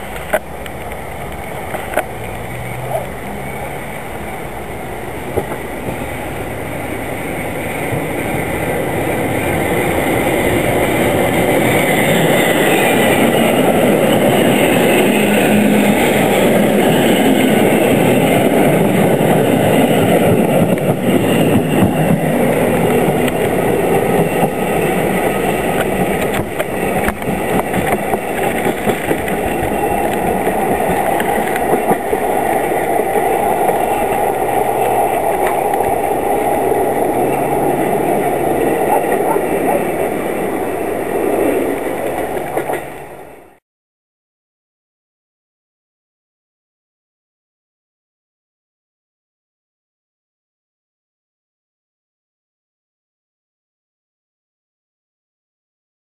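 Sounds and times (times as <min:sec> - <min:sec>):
electric train running past: 0:00.0 - 0:43.6
wheel clicks on rails: 0:25.3 - 0:36.1.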